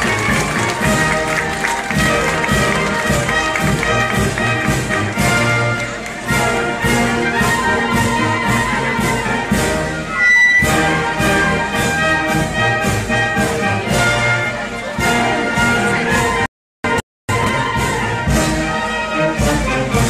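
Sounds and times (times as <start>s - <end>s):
brass band music: 0.0s - 20.0s.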